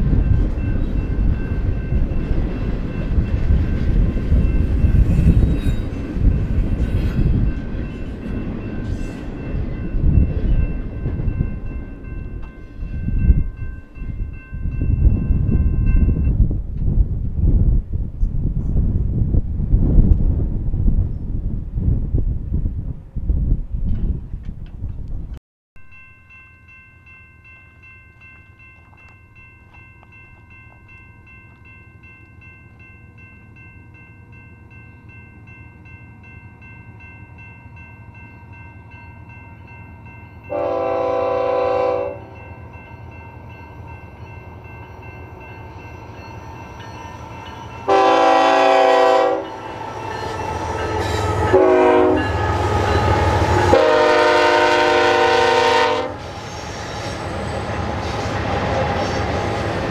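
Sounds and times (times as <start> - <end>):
locomotive air horn blasts: 40.5 - 42.4, 47.9 - 56.3.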